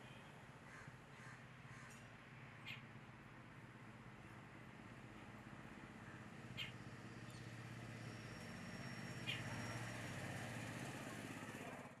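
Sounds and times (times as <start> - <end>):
high bird chirps: 6.6 - 7.5, 8.8 - 9.7.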